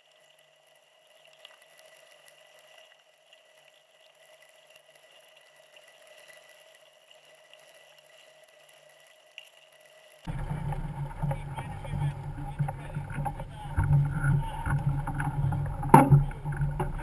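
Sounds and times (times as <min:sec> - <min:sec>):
faint ticks: 0:00.0 - 0:17.0
faint steady tonal hum: 0:10.3 - 0:17.0.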